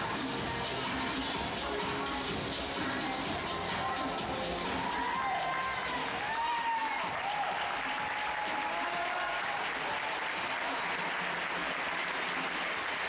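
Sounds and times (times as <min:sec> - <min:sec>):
audience applauding: 0:04.8 - 0:13.0.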